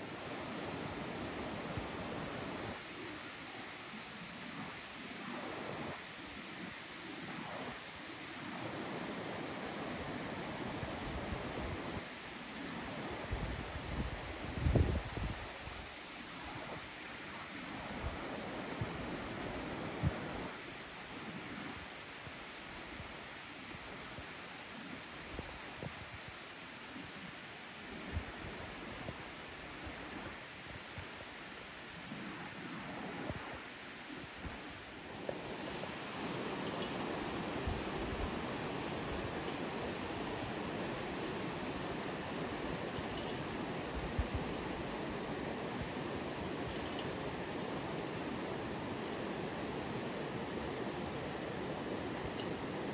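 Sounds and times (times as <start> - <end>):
steady high-pitched hiss: 0.0 - 52.9
wind rushing through trees: 0.0 - 52.9
wind gusts buffeting microphone: 12.7 - 15.9, 34.4 - 52.9
wind buffeting microphone: 13.0 - 15.6.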